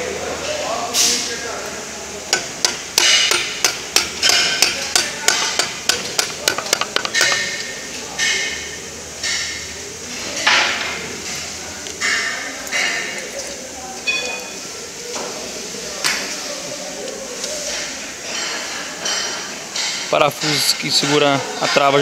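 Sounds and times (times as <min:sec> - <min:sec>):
metal tool tapping: 0:02.3 - 0:08.6.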